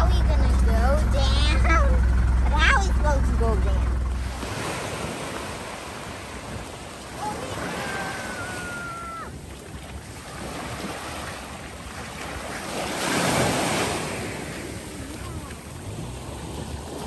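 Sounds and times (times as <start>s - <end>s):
waves washing onto sandy beach: 4.2s - 17.0s.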